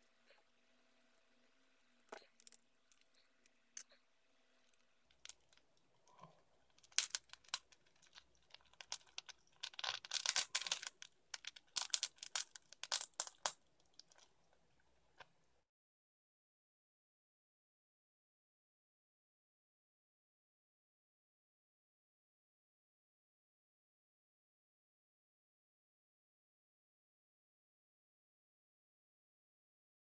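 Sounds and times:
adhesive crackling and ripping: 6.7 - 14.3.

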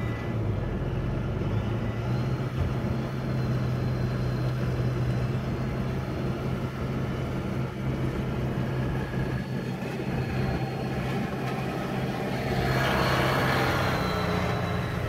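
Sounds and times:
car engine hum: 0.0 - 15.0
tractor engine passing: 3.0 - 15.0.

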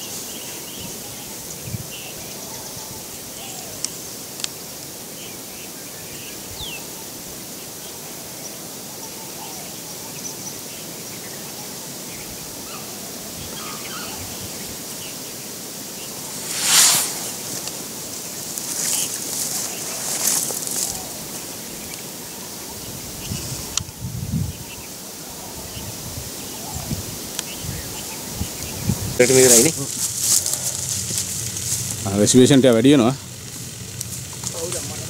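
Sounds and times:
steady outdoor hiss: 0.0 - 35.0
bush rustling: 13.2 - 23.8, 25.4 - 35.0.

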